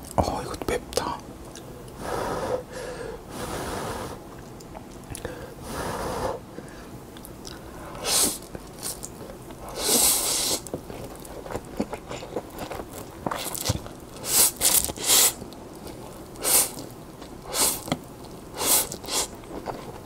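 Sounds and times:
person slurping noodles: 9.7 - 10.7, 14.2 - 15.4, 16.4 - 16.8, 17.5 - 17.9, 18.6 - 19.4
wet chewing: 10.5 - 20.0.

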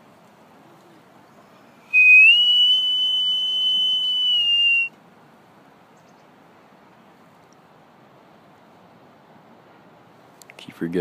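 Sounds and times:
person whistling high note: 1.9 - 4.9.

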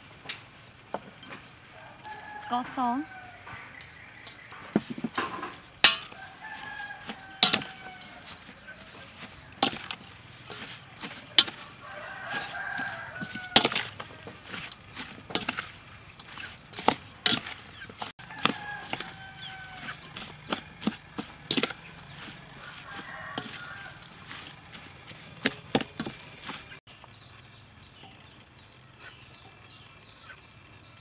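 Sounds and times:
chickens calling: 0.6 - 26.8
wooden spoon knocking metal bowl: 4.6 - 23.6.

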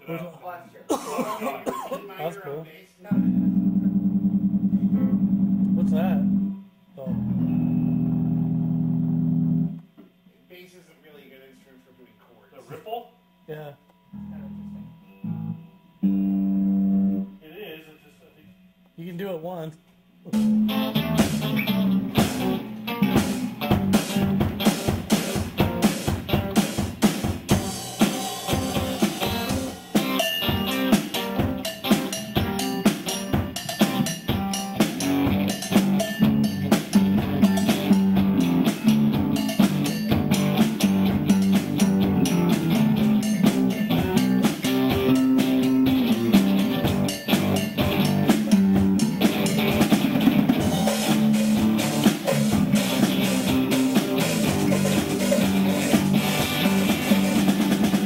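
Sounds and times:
guitar playing: 3.1 - 9.8, 14.1 - 17.4, 20.3 - 58.0
drum kit beat: 3.1 - 10.0, 20.3 - 58.0.

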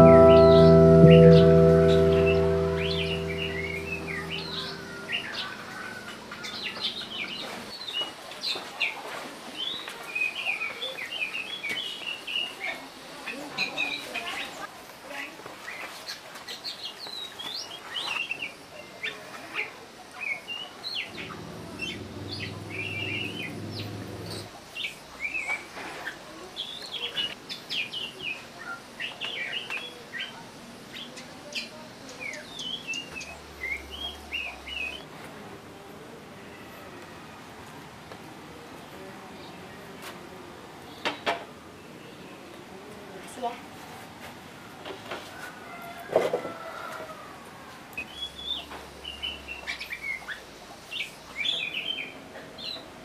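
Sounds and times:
low hum: 0.0 - 6.4
small birds chirping: 19.6 - 35.0.

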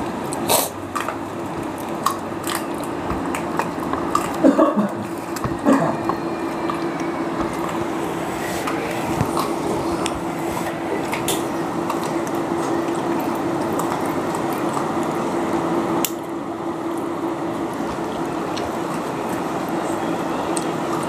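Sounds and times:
background hum and hiss: 0.0 - 21.0
wet chewing and tearing meat: 0.2 - 16.3.

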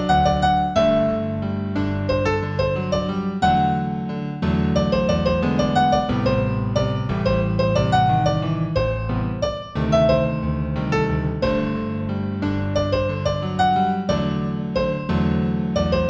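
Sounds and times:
solo piano playing: 0.0 - 16.0.

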